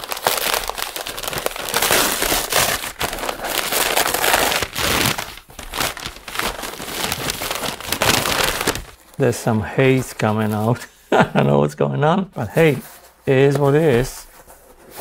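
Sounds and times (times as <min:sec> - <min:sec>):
paper wrapping torn and crumpled: 0:00.0 - 0:09.0.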